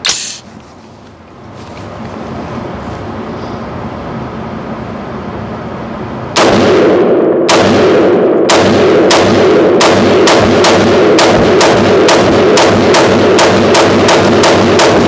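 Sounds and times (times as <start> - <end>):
rifle shots ringing indoors: 6.3 - 15.0.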